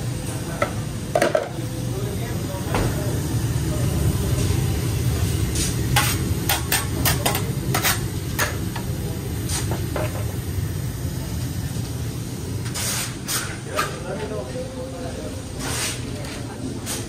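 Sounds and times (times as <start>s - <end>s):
spatulas clacking on a griddle: 5.9s - 8.9s.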